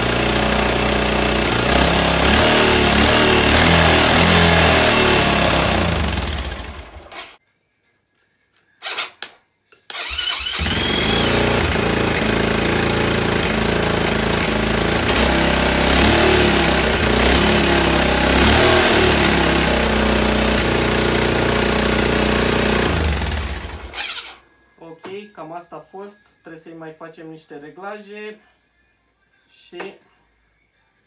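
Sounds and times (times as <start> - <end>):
engine running steadily: 0.0 - 7.1, 10.6 - 23.9
engine starter cranking: 1.7 - 7.4, 9.9 - 24.4.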